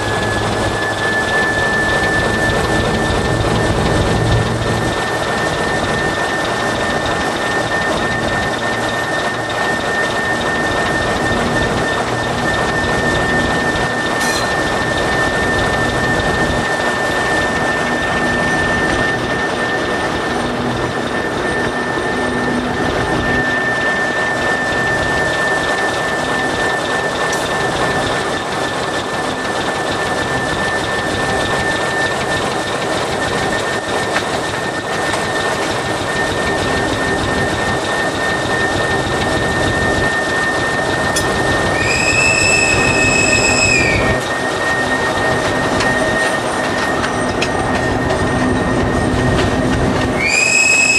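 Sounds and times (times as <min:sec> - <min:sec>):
thin high whine: 0:00.0 - 0:28.1, 0:34.7 - 0:50.9
locomotive rumbling along track: 0:00.0 - 0:50.9
high-pitched tone: 0:13.5 - 0:25.1.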